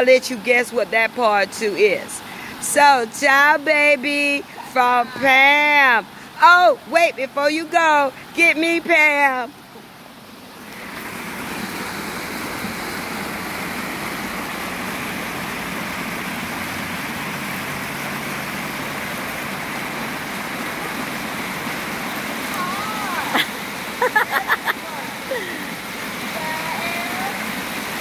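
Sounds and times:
water rushing down fountain: 10.4 - 28.0.

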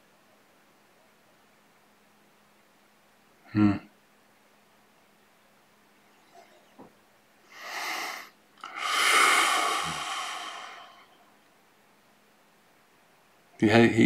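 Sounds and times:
man breathing deeply: 7.5 - 11.3.

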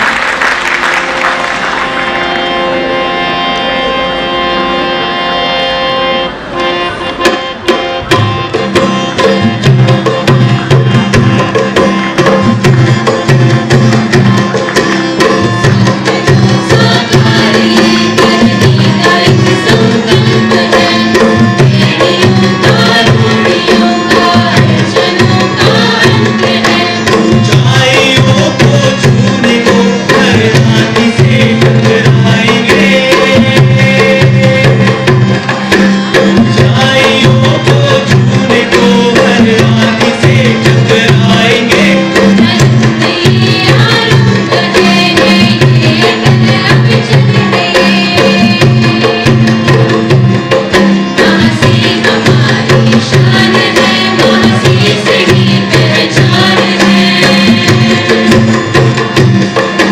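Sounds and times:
hand drums: 7.1 - 59.9
group of people singing: 12.2 - 59.9.

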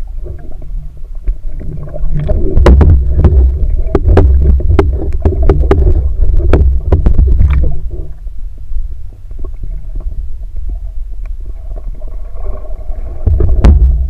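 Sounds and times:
muffled underwater rumble: 0.0 - 14.0
underwater clicks and knocks: 0.2 - 8.2, 13.2 - 14.0.

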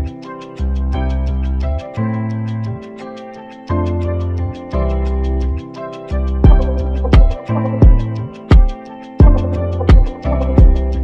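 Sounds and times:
music with steady drum beat: 6.4 - 11.0.

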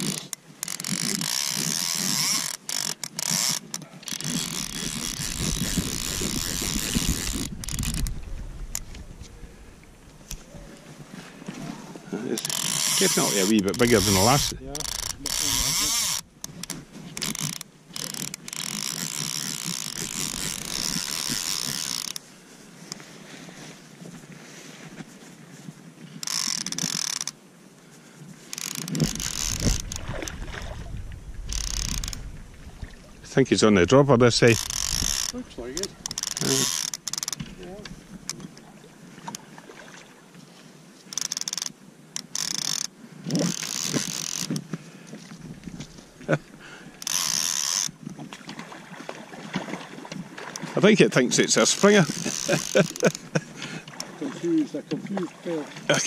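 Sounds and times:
fly reel ratchet buzzing: 0.0 - 8.9, 12.4 - 22.2, 26.2 - 27.4, 28.5 - 30.0, 31.5 - 32.3, 34.4 - 37.5, 41.1 - 44.5, 47.0 - 48.0, 51.7 - 53.4
wind rumble on microphone: 4.6 - 11.8, 29.0 - 36.2.

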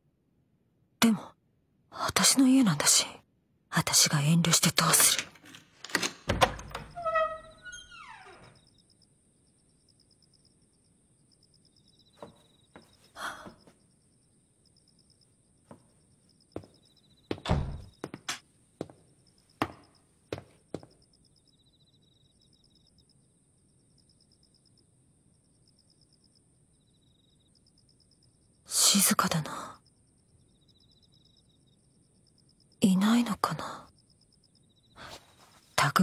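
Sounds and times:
door creaking open: 4.7 - 8.7, 17.3 - 18.4
key turning in lock: 5.0 - 7.9
crickets chirping: 6.2 - 36.0
footsteps on hard floor: 16.6 - 19.0, 19.6 - 21.0.

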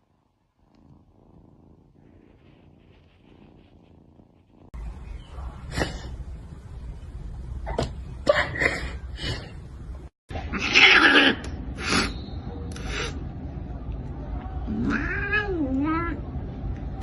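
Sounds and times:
cat meowing: 14.7 - 16.2.

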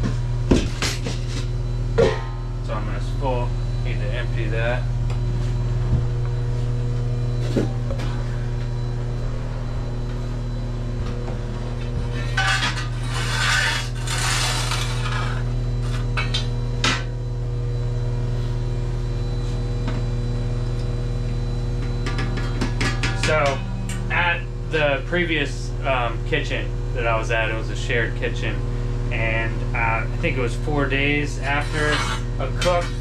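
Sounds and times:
steady hum: 0.0 - 33.0
metal tools scraping ash: 12.1 - 16.1, 31.1 - 33.0.

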